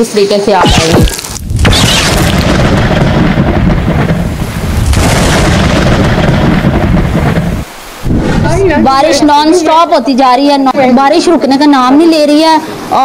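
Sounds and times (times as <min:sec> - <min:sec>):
thunder rumbling: 0:00.6 - 0:10.2
heavy rain: 0:01.0 - 0:13.0.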